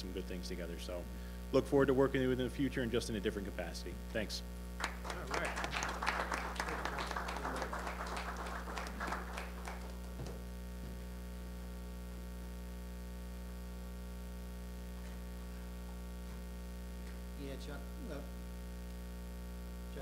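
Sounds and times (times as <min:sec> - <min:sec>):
electrical mains hum: 0:00.0 - 0:20.0
small group applauding: 0:04.8 - 0:10.4.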